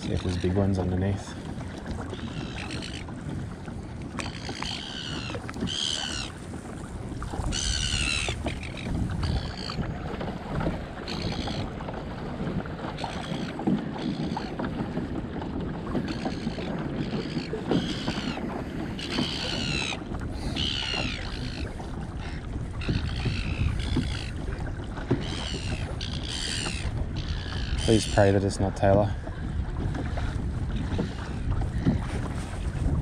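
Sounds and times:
gulls squawking: 0:00.0 - 0:01.4, 0:02.0 - 0:03.1, 0:04.1 - 0:06.5, 0:07.2 - 0:09.9, 0:11.0 - 0:11.8, 0:12.8 - 0:14.6, 0:15.9 - 0:29.2
wind rumble on microphone: 0:00.0 - 0:33.0.

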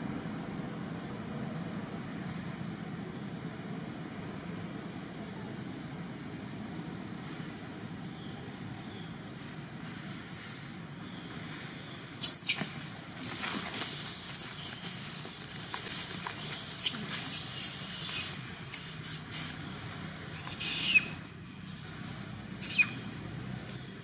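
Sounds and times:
monkey screaming in high squeals: 0:12.2 - 0:19.6, 0:20.3 - 0:21.2, 0:22.6 - 0:23.0.

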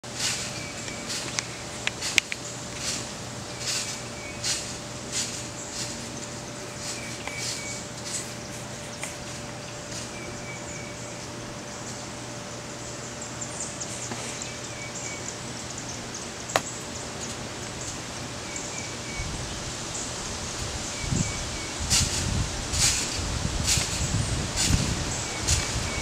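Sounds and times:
steady hiss: 0:00.0 - 0:10.2.

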